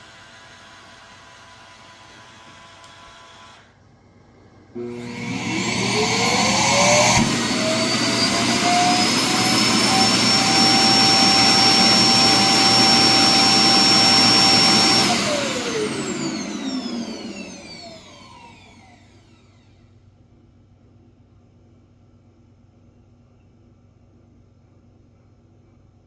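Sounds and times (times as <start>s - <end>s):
suction motor whine: 4.8s - 19.7s.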